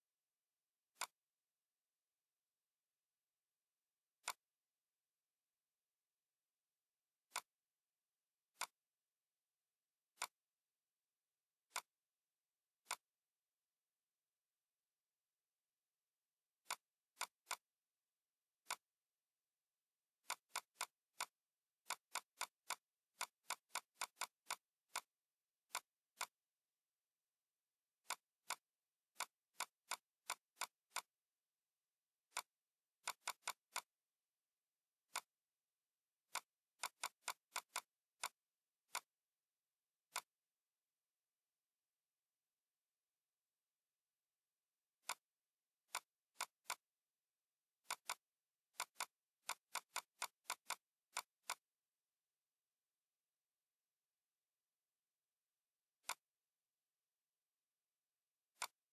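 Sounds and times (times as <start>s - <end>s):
computer mouse clicking: 0.9s - 1.2s, 4.2s - 4.5s, 7.3s - 7.6s, 8.6s - 8.8s, 10.2s - 10.4s, 11.7s - 12.0s, 12.8s - 13.1s, 16.6s - 17.7s, 18.6s - 18.9s, 20.2s - 26.4s, 28.0s - 31.2s, 32.3s - 34.0s, 35.1s - 35.4s, 36.2s - 39.2s, 40.1s - 40.4s, 45.0s - 46.9s, 47.8s - 51.7s, 56.0s - 56.4s, 58.5s - 58.9s.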